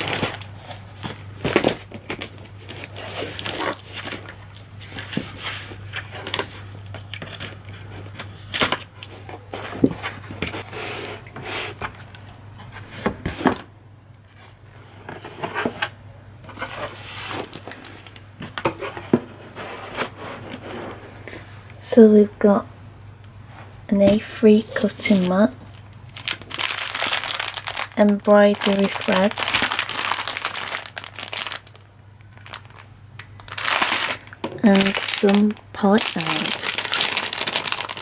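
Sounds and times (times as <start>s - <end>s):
cardboard scraping and rustling: 0.0s - 13.7s, 14.3s - 21.3s
cardboard knocks and crinkles: 7.2s - 10.7s.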